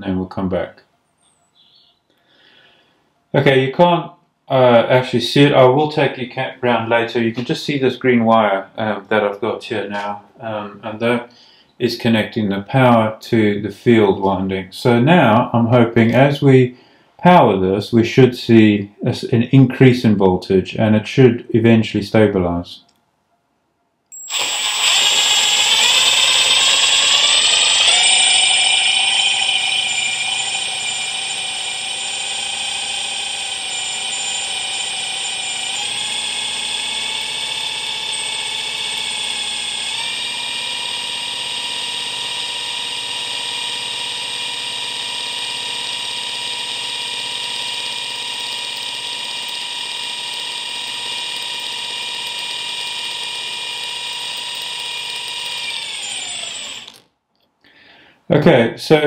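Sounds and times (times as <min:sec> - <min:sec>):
dynamo whining: 0:24.1 - 0:57.0.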